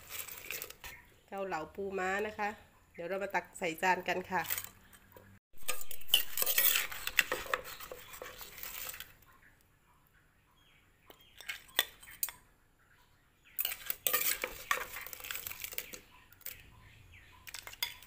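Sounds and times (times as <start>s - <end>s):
spoon scraping in a mortar: 0.0s - 1.0s, 4.3s - 4.8s, 5.6s - 9.2s, 11.4s - 12.4s, 13.6s - 16.6s, 17.4s - 18.0s.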